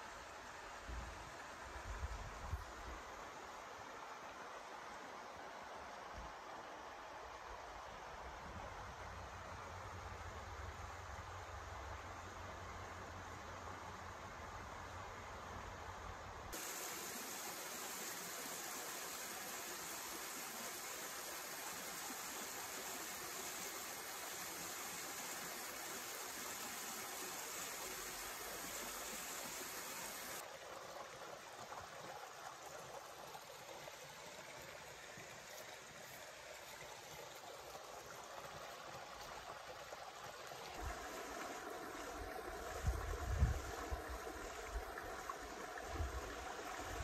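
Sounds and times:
stream running over rocks: 0.0s - 47.0s
wind rumbling on microphone: 42.1s - 45.2s.

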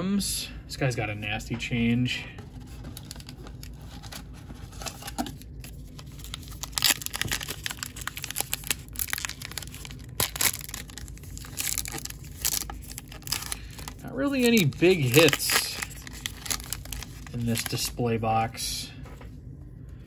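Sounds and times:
wrapper crinkling and tearing: 2.5s - 18.0s.

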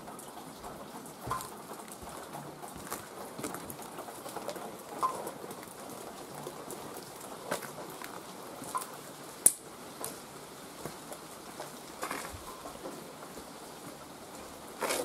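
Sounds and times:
steady hiss: 0.0s - 15.0s
footsteps on concrete with debris: 1.2s - 4.6s, 10.8s - 14.0s, 14.7s - 15.0s.

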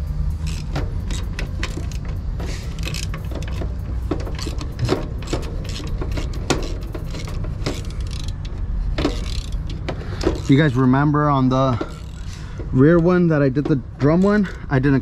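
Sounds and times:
hand ratchet clicking: 0.0s - 14.9s.

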